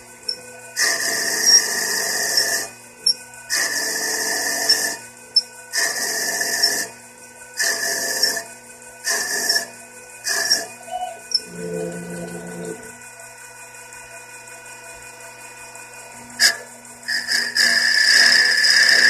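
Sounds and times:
lathe humming: 0.0s - 8.4s, 9.0s - 19.0s
lathe tool scraping wood: 3.5s - 5.0s, 5.8s - 6.9s, 7.6s - 10.8s, 11.4s - 12.9s, 16.4s - 19.0s.

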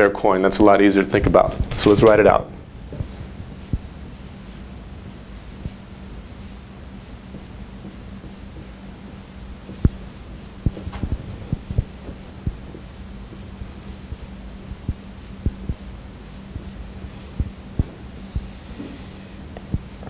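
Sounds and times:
marker scratching strokes: 2.9s - 20.0s
marker tapping whiteboard: 7.4s - 14.0s, 17.4s - 20.0s.

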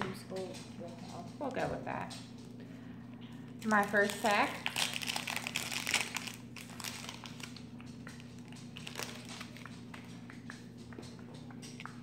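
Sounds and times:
foil wrapper crinkling: 3.6s - 10.1s.

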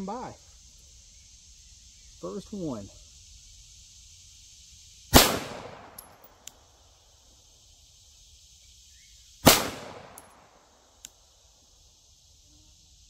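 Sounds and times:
gunshot echo: 5.1s - 6.2s, 9.4s - 10.5s
pistol shot: 5.1s - 6.3s, 9.4s - 10.5s
faint ticks: 5.9s - 6.8s, 11.0s - 11.3s.

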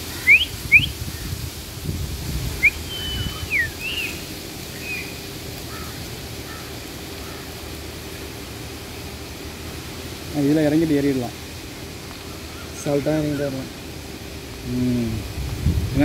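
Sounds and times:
high whistles: 0.2s - 1.0s, 2.6s - 5.2s.

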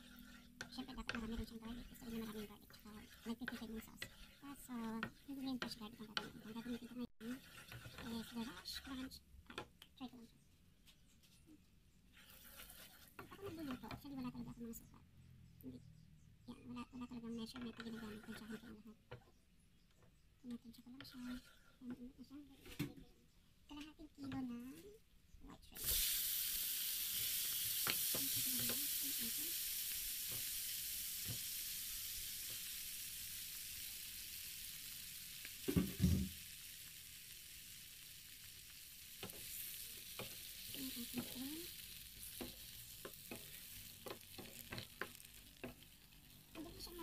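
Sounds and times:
shrimp sizzling in hot oil: 0.0s - 9.1s, 25.7s - 47.0s
clicks and scrapes of stirring: 0.0s - 10.0s, 12.1s - 14.0s, 17.4s - 22.9s, 39.2s - 47.0s.

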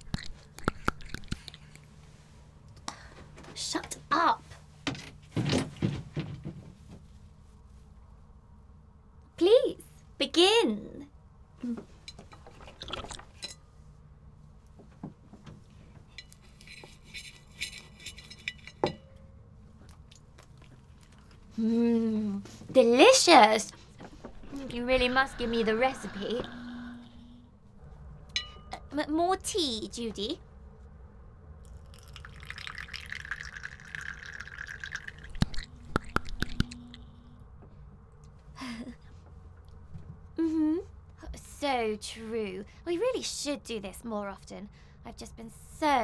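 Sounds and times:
knife and fork scraping on plate: 16.2s - 18.8s
tea pouring into cup: 31.7s - 36.7s.

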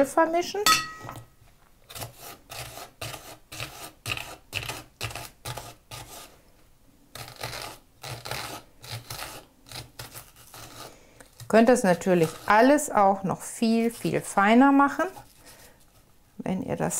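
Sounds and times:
knife slicing onion on board: 1.9s - 6.3s.

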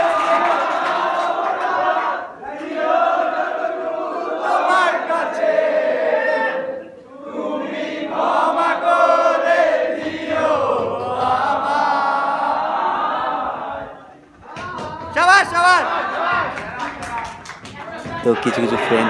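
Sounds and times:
young men singing in unison: 0.0s - 15.1s.

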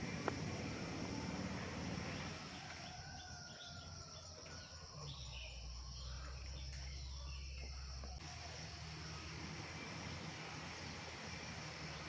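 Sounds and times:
insect drone: 0.0s - 12.0s
faint bird chirps: 2.1s - 8.2s.

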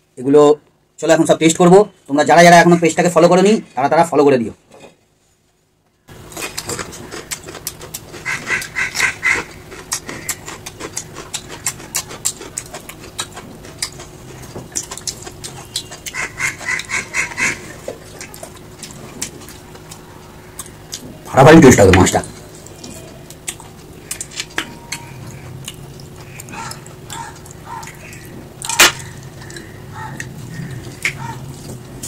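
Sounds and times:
fingers squishing wet food: 6.1s - 21.0s, 21.8s - 31.7s
wet chewing and lip-smacking: 6.1s - 21.3s, 22.2s - 32.0s.

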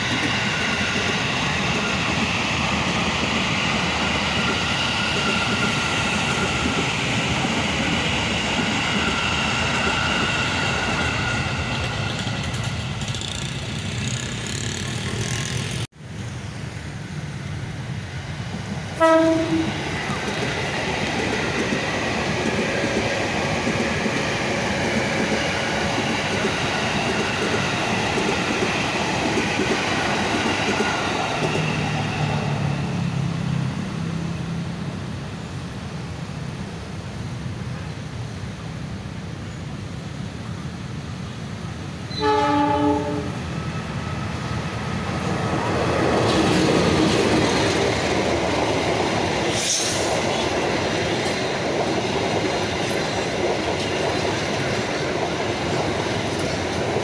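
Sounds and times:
trains running on rails: 0.0s - 57.0s
train horn blast: 19.0s - 19.8s, 42.1s - 43.4s.

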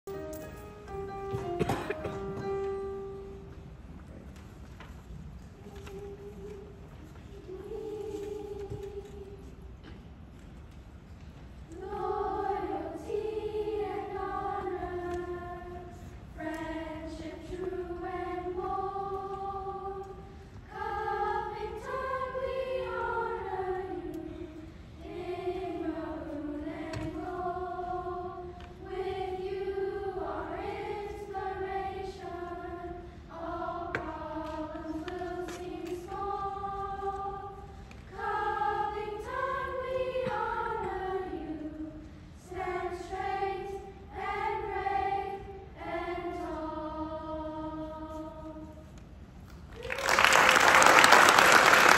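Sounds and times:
children's choir singing: 0.1s - 3.8s, 5.5s - 10.0s, 11.6s - 49.0s, 49.8s - 51.9s.

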